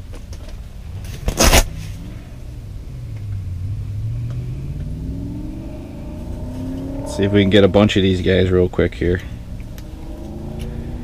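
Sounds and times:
motor droning: 0:02.8 - 0:08.3.

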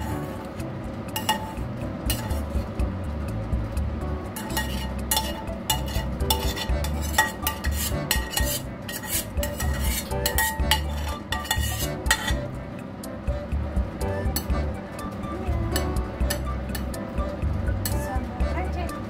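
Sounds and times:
metal spoon scraping a metal pan: 0:00.0 - 0:00.5, 0:01.1 - 0:02.7, 0:04.3 - 0:12.5, 0:14.3 - 0:14.6, 0:15.7 - 0:17.0, 0:17.8 - 0:18.1.

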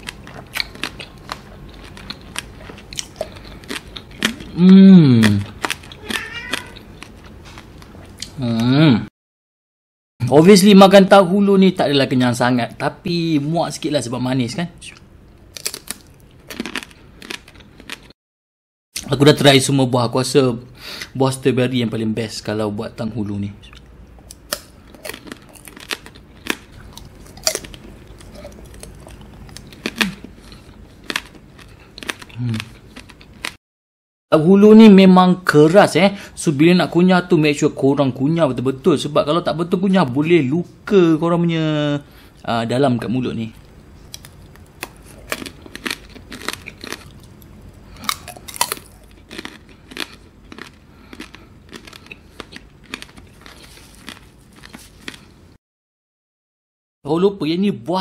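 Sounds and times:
sugar shell cracking and crunching: 0:15.5 - 0:18.1, 0:24.2 - 0:33.6, 0:44.1 - 0:55.3.

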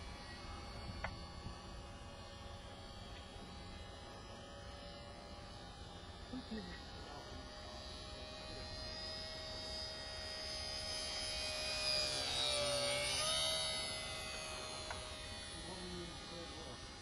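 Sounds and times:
model plane motor whine: 0:00.0 - 0:17.0.

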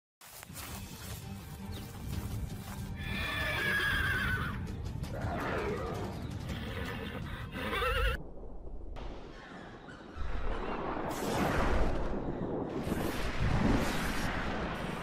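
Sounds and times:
horse whinnying: 0:03.0 - 0:04.6, 0:06.5 - 0:08.2
low rumble: 0:08.2 - 0:15.0.

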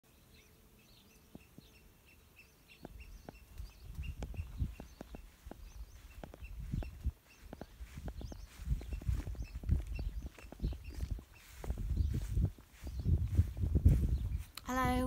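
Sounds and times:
small bird chirping: 0:00.1 - 0:15.0
footsteps: 0:02.8 - 0:14.7.

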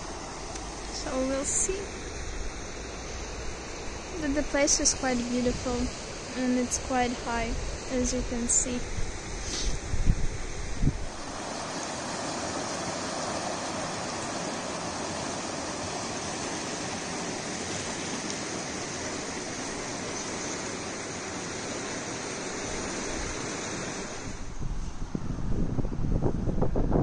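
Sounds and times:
river water rushing over rocks: 0:11.0 - 0:24.5.

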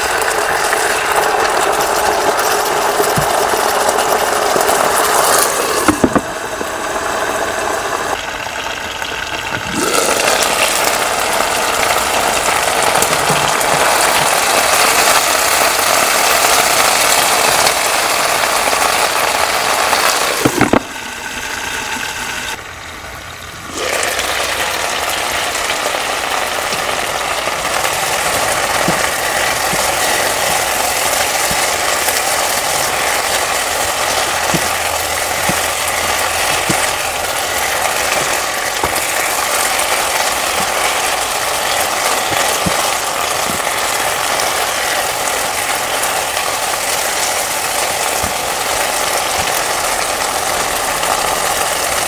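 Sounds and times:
food sizzling in hot oil: 0:00.0 - 0:52.0
spatula stirring in a pan: 0:25.0 - 0:52.0.

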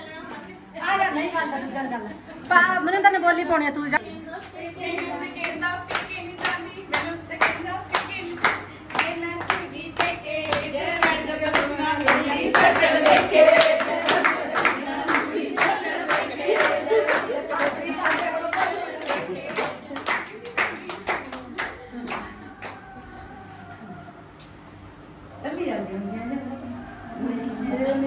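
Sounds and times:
voices singing along: 0:04.5 - 0:24.3
rhythmic hand clapping: 0:04.8 - 0:23.8.

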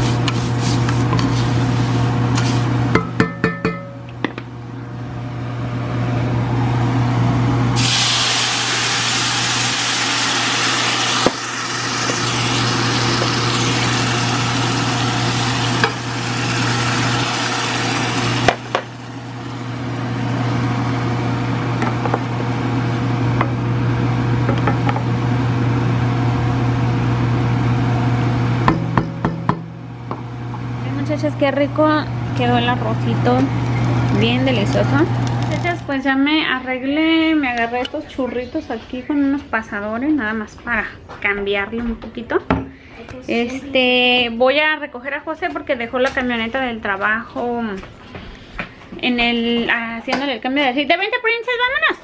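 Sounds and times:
sauce hissing and sizzling in pan: 0:07.8 - 0:19.4.

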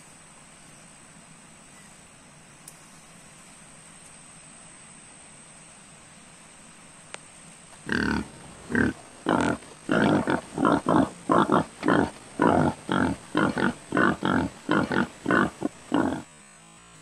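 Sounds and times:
pig grunting: 0:07.9 - 0:16.3.

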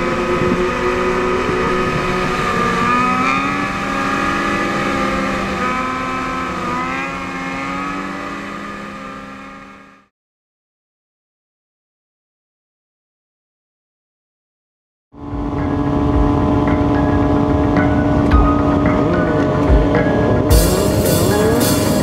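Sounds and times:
motorcycle engines revving: 0:00.0 - 0:10.1, 0:15.2 - 0:22.0.

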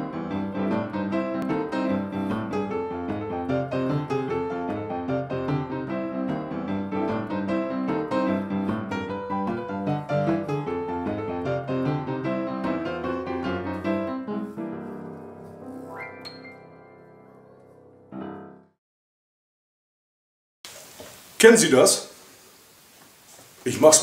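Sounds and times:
piano music: 0:00.0 - 0:18.8.

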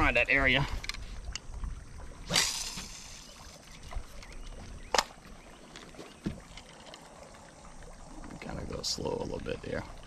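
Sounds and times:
fishing rod casting whoosh: 0:02.2 - 0:03.6
dull thump: 0:06.2 - 0:06.5.

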